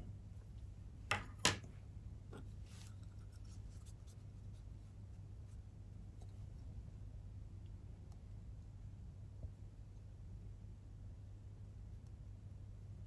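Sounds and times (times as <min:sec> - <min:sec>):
steady low hum: 0:00.0 - 0:13.0
light scratchy rustling: 0:02.4 - 0:06.4.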